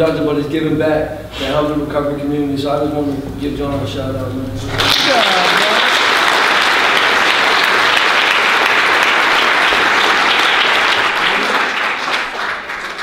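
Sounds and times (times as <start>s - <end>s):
people applauding: 4.7s - 13.0s.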